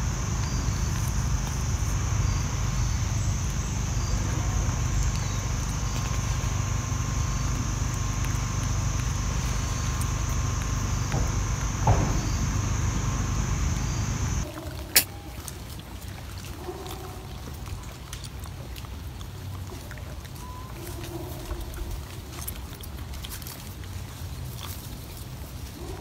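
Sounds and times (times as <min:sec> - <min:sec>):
high-pitched insect drone: 0:00.0 - 0:14.4
low rumble: 0:00.0 - 0:14.4.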